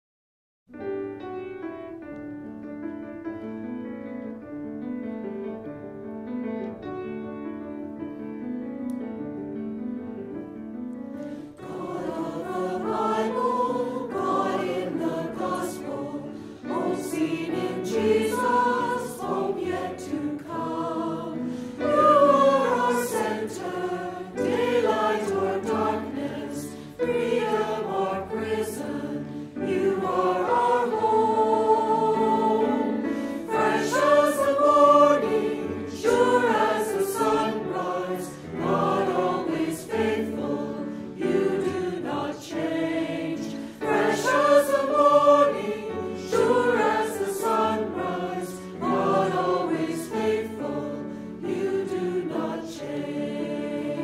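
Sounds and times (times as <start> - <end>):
piano playing: 0.7 - 54.0
choir singing a hymn: 11.2 - 54.0.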